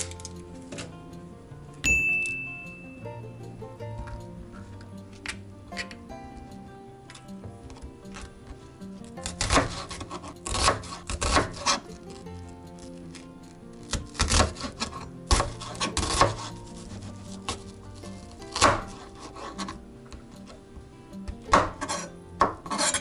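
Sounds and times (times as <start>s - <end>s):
background music: 0.0s - 23.0s
knife chopping onion on board: 9.2s - 11.9s, 13.8s - 20.6s, 21.3s - 23.0s.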